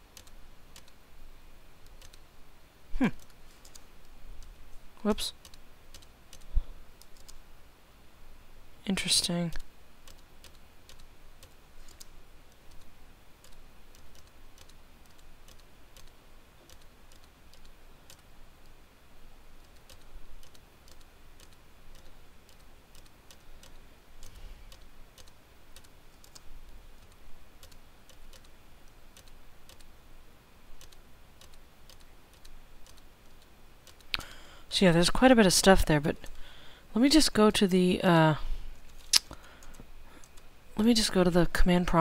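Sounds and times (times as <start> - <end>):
keyboard and mouse clicking: 0.1 - 1.0, 1.8 - 2.2, 3.2 - 3.8, 5.4 - 7.4, 9.5 - 18.8, 19.6 - 29.9, 30.8 - 34.2.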